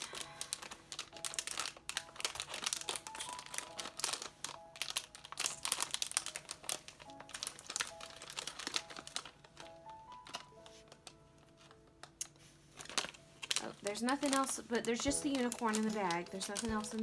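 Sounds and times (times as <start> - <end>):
foil bag crinkling: 0.0 - 17.0
light background music: 0.0 - 17.0.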